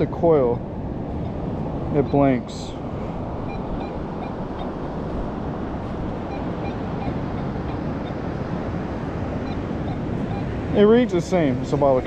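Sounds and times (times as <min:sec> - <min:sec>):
surf: 0:00.0 - 0:12.0
wind noise on microphone: 0:00.0 - 0:12.0
metal detector beeps: 0:03.4 - 0:04.4, 0:06.3 - 0:07.8.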